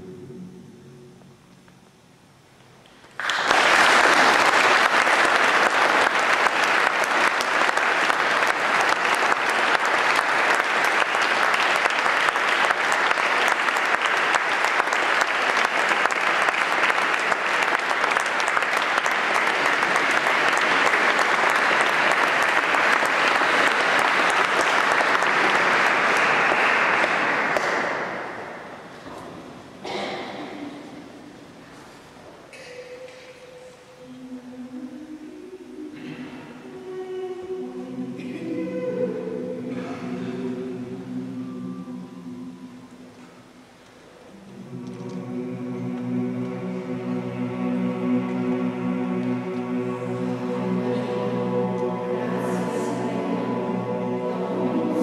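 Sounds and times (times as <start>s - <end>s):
audience applauding: 3.0s - 28.7s.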